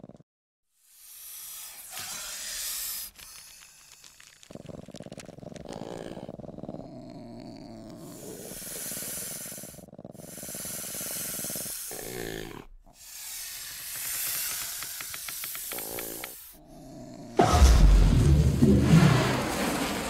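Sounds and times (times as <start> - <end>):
heavy hissing breaths: 0.8 - 4.8, 5.7 - 17.4
low growling rasp: 4.5 - 17.6
loud low rumble: 17.4 - 20.0.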